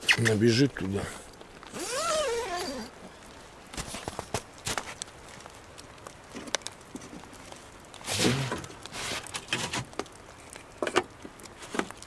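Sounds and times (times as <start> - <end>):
footsteps through wet snow: 1.8 - 9.3.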